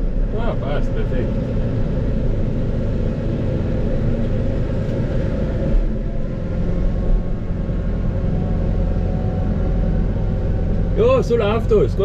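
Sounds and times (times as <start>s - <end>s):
tractor diesel engine drone: 0.0s - 12.0s.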